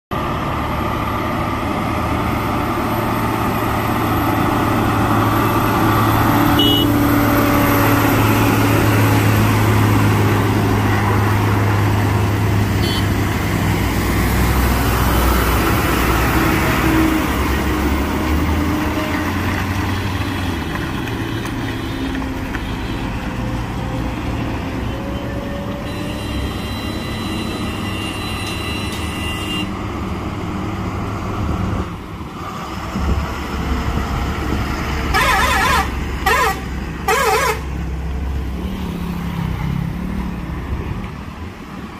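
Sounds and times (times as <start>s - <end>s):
heavy truck engine passing: 0.1s - 41.9s.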